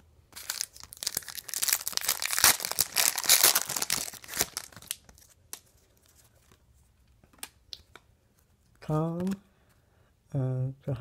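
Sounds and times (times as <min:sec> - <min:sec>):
foil pack crinkling and tearing: 0:00.3 - 0:05.3.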